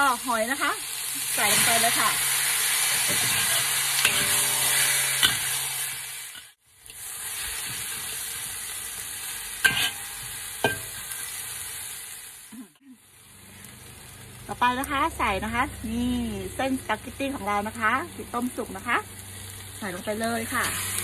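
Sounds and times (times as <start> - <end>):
food sizzling in a wok: 0.0 - 21.0
metal spatula stirring: 2.9 - 6.5, 9.6 - 11.2
spatula clinking against wok: 3.1 - 5.5, 9.6 - 11.0.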